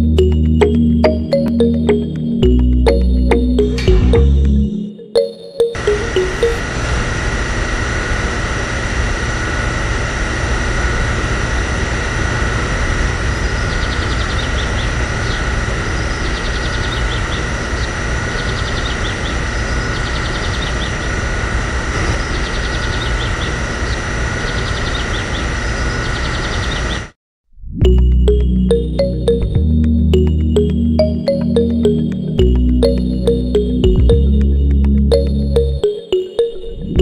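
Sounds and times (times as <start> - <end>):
small pump motor whine: 5.8 - 27.2.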